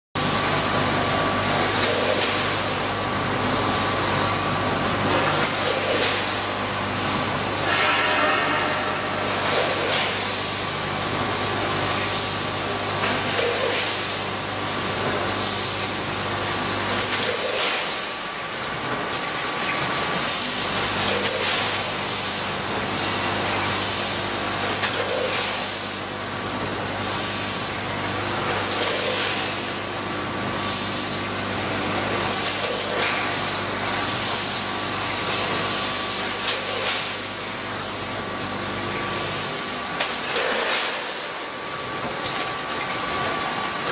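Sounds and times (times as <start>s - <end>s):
machine hum: 2.9s - 13.0s.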